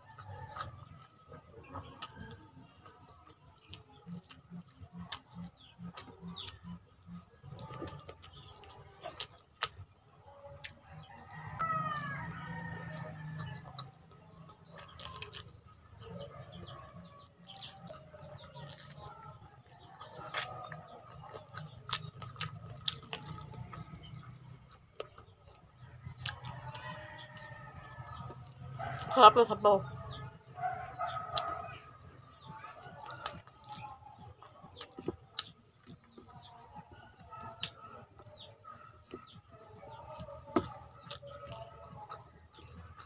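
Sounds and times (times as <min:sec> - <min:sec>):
rooster crowing: 0:11.1 - 0:13.6
wet chewing and sucking: 0:12.9 - 0:15.8, 0:17.1 - 0:29.2.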